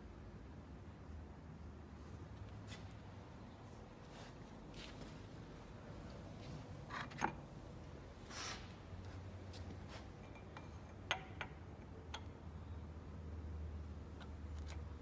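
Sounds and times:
soft rustle: 2.1s - 6.7s.

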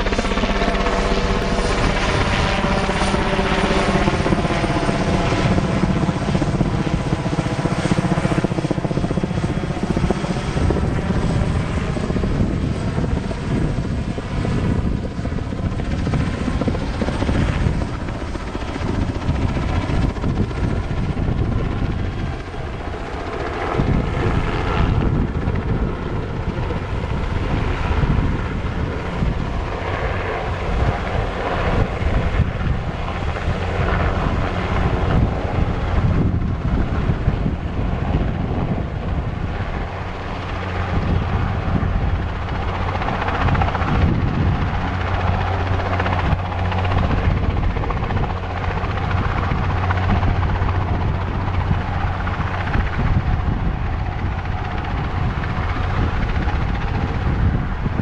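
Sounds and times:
helicopter flying overhead: 0.0s - 58.0s.

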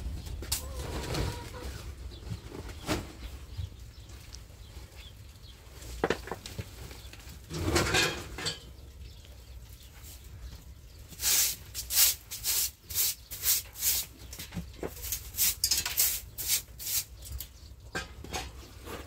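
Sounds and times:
rustling: 0.0s - 8.6s
household objects clattering: 7.5s - 8.7s
broom sweeping floor: 11.1s - 17.2s.

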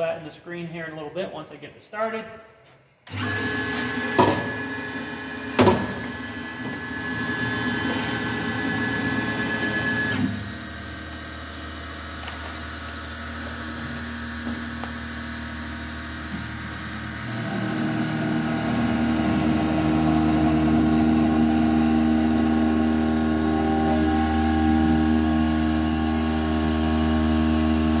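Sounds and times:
end mill cutting steel whine: 3.1s - 28.0s
milling machine running: 3.1s - 28.0s
coolant spraying: 10.4s - 28.0s.

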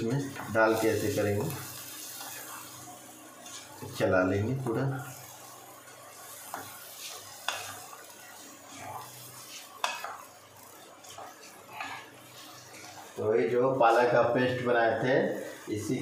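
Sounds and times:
wooden spatula stirring rice: 3.4s - 4.0s, 5.9s - 13.2s.

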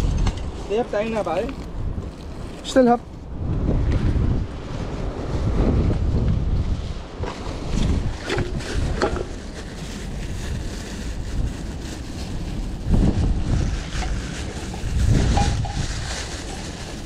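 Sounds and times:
wind buffeting microphone: 0.0s - 17.0s
plastic bag crackling: 0.7s - 3.0s, 7.4s - 17.0s.

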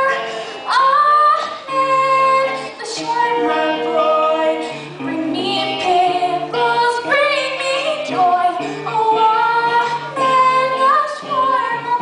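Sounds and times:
acoustic guitar accompaniment: 0.0s - 12.0s
woman singing: 0.0s - 12.0s.

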